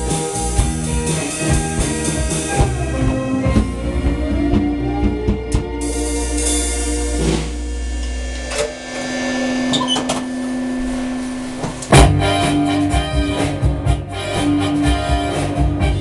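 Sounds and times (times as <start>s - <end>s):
loud hit: 5.8s - 14.0s
cymbal crash: 5.8s - 14.6s.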